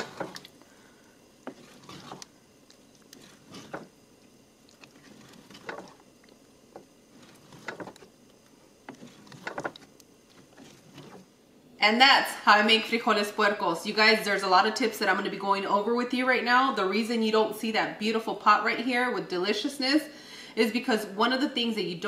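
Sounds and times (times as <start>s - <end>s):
spoon scraping pot: 0.0s - 0.5s, 1.4s - 2.3s, 2.9s - 4.0s, 4.7s - 6.0s, 8.8s - 11.3s.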